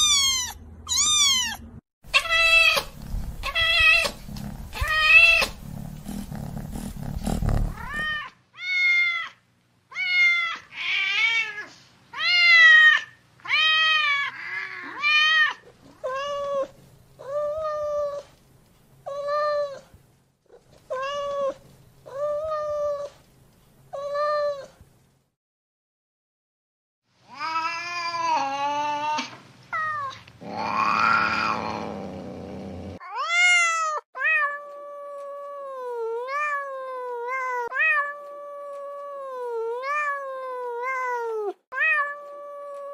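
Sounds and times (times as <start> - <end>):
cat meowing: 0.0 - 5.6, 7.6 - 18.0
low rumble: 2.8 - 8.1.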